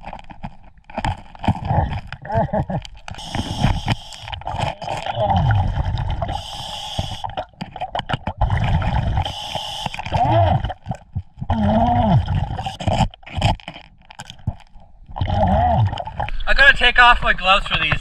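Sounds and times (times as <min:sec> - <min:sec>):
metal pick scraping rock underwater: 0:00.0 - 0:11.6, 0:12.2 - 0:16.5
scuba regulator breathing: 0:03.1 - 0:07.4, 0:08.4 - 0:10.8.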